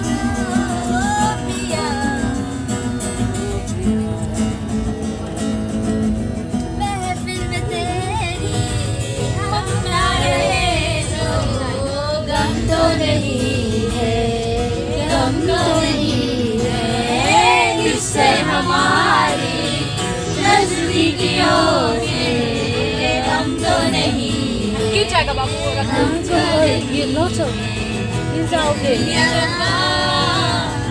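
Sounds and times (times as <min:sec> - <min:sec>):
group singing: 0:00.0 - 0:05.1, 0:08.7 - 0:30.9
acoustic guitar strumming: 0:00.0 - 0:30.9.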